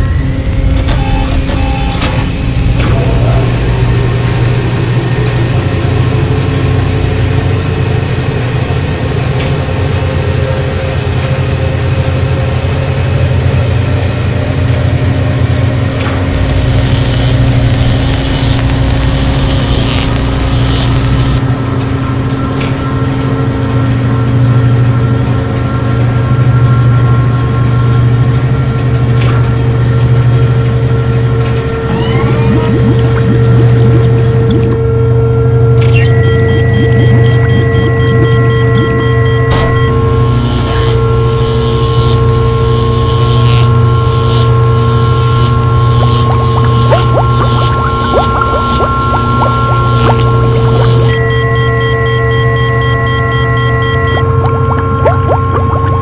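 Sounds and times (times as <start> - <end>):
low machine hum: 0.0 - 56.0
low mechanical drone: 0.0 - 56.0
faint steady whine: 16.3 - 21.4
steady higher tones: 44.5 - 51.2.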